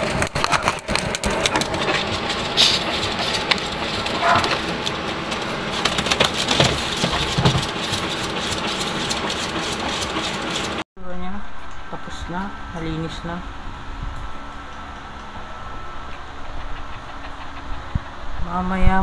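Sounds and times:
blower motor and air rush: 0.0 - 10.8.

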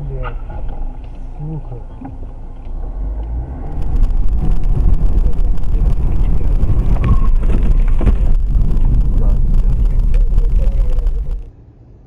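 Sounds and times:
car engine and road noise: 0.0 - 12.0.

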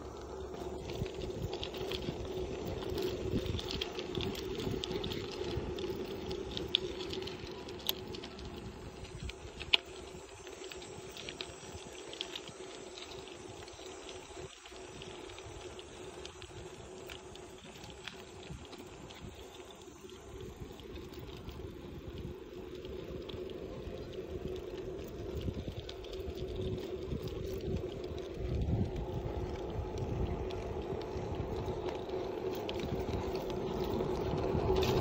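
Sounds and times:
bicycle clicks and rattles: 0.0 - 35.0
bicycle tyre hum: 0.0 - 35.0.

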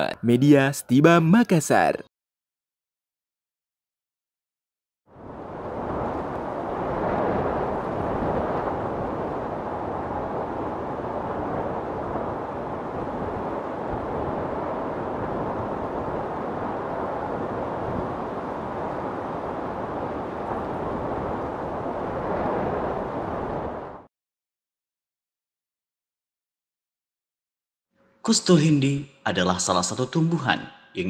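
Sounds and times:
steady rushing noise: 5.1 - 24.1.

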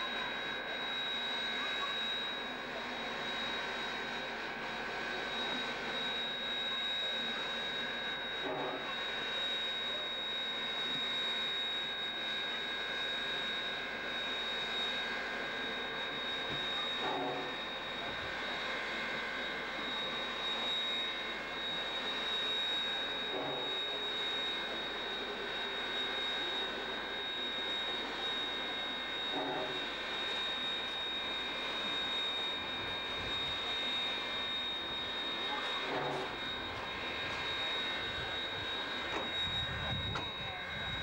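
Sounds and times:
steam hissing from locomotive: 16.1 - 22.1, 26.4 - 29.9, 35.3 - 37.0.

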